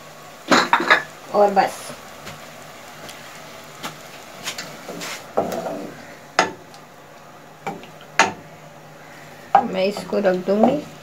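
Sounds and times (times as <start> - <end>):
spatula knocking on metal pot: 6.4 - 6.6.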